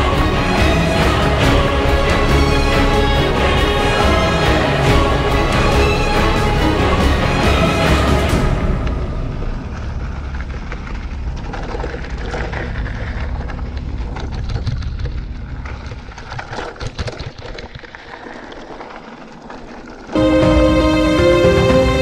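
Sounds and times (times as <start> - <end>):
tyres crunching over loose ground: 8.4 - 20.2
bike clicks and rattles: 9.7 - 20.2.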